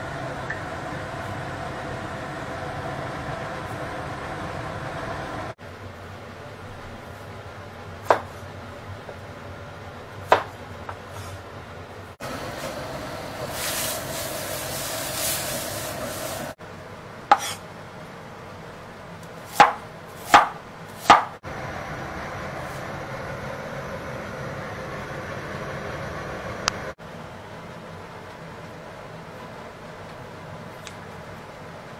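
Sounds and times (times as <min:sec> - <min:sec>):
cleaver chopping on cutting board: 0:08.0 - 0:08.4, 0:17.3 - 0:17.6, 0:19.5 - 0:21.4
steaming wok hissing: 0:11.1 - 0:11.4, 0:12.2 - 0:16.6, 0:21.0 - 0:27.0.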